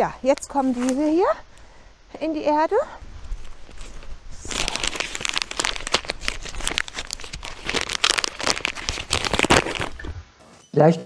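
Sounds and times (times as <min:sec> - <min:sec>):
paper bag crinkling: 0:03.0 - 0:10.1.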